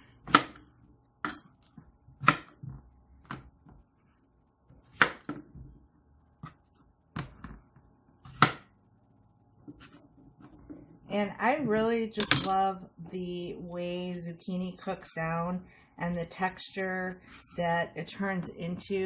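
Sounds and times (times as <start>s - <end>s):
knife chopping on plastic board: 0.2s - 0.6s, 1.2s - 3.6s, 4.8s - 5.7s, 6.4s - 7.6s, 8.2s - 8.7s.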